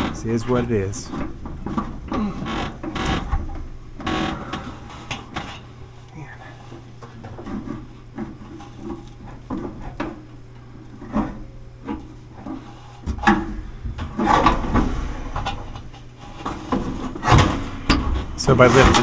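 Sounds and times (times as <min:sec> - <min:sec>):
drum rubbing and scraping: 0:12.0 - 0:19.0.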